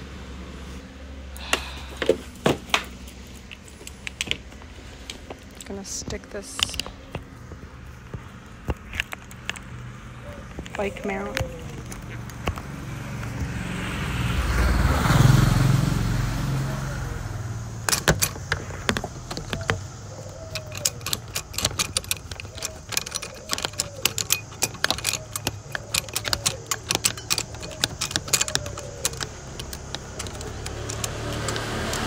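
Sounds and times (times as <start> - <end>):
motor vehicle passing: 0.0 - 32.0
phone rattling in plastic mount: 3.4 - 12.8, 17.8 - 32.0.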